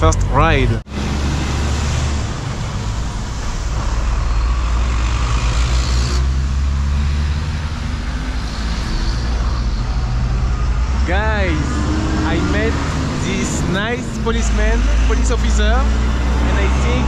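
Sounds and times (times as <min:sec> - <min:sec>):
truck engine rumble: 0:00.0 - 0:17.0.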